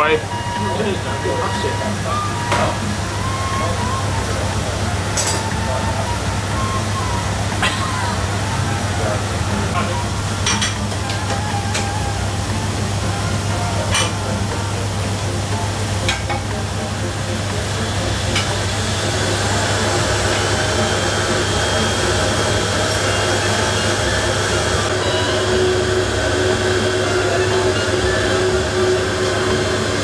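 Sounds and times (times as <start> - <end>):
fan-like kitchen drone: 0.0 - 30.0
pans and utensils clattering: 5.1 - 5.8, 9.8 - 12.0, 13.8 - 14.4, 16.0 - 16.6, 18.2 - 18.8.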